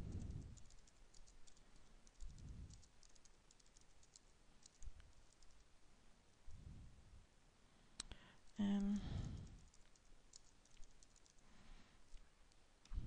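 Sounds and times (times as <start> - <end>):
person humming: 8.6 - 9.5.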